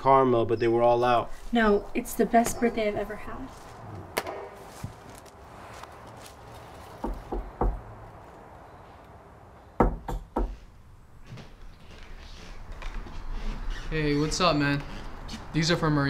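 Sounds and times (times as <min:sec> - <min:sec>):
knocking on a door: 0:07.0 - 0:07.8, 0:09.8 - 0:10.6.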